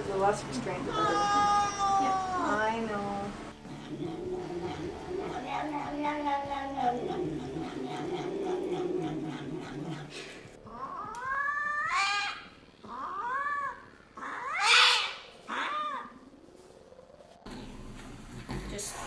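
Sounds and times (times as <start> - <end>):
cat yowling in distress: 0.9 - 2.6, 4.6 - 9.7, 10.7 - 16.2
cat growling: 3.5 - 16.2.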